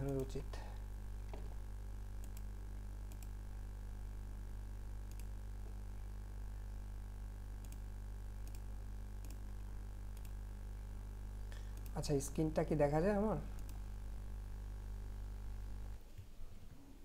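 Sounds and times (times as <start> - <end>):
low electrical hum: 0.0 - 17.0
computer mouse clicking: 2.2 - 2.5, 3.1 - 3.4, 5.0 - 5.3, 7.6 - 9.4, 10.1 - 10.4, 13.6 - 13.8.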